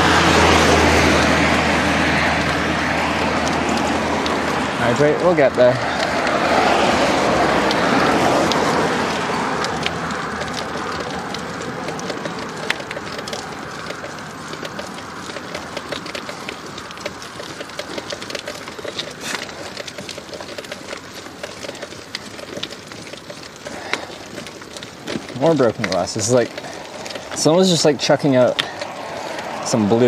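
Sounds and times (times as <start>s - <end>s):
motor vehicle passing: 0.0s - 30.0s
road and wind noise: 0.0s - 30.0s
small sharp clicks and crackles: 0.0s - 30.0s.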